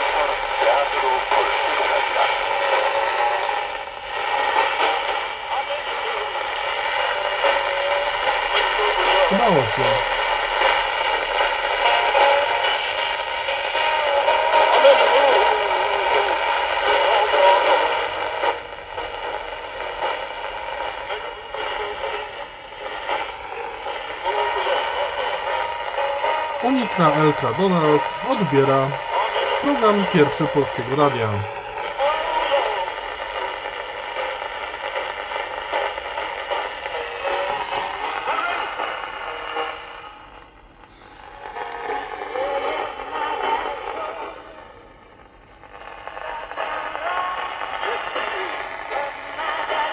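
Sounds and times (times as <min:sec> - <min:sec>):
radio broadcast through small speaker: 0:00.0 - 0:49.9
radio hiss and interference: 0:00.0 - 0:49.9.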